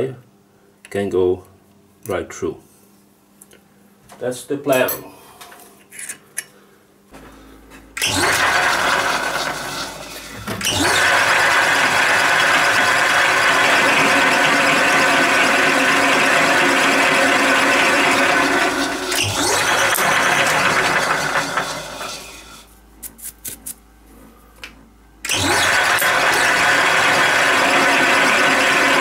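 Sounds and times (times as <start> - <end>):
drill boring into metal: 8.0 - 22.6, 25.3 - 29.0
metal lathe motor running: 8.0 - 22.6, 25.3 - 29.0.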